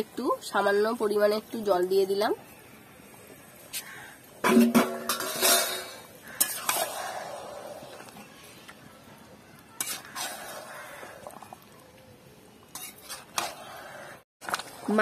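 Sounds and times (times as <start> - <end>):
metal spatula scraping pan: 4.4 - 7.5, 9.8 - 10.9, 12.7 - 14.2.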